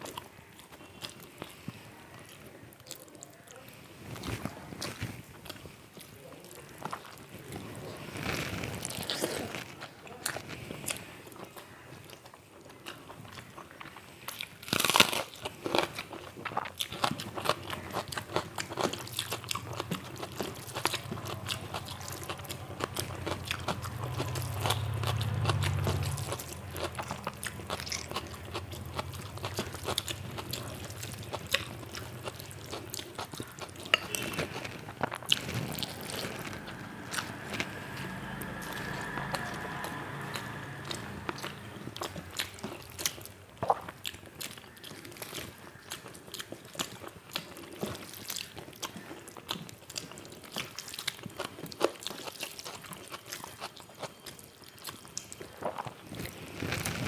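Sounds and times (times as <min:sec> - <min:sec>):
person chewing crunchy food: 0:00.0 - 0:57.0
low hum: 0:19.8 - 0:32.8, 0:35.4 - 0:43.3.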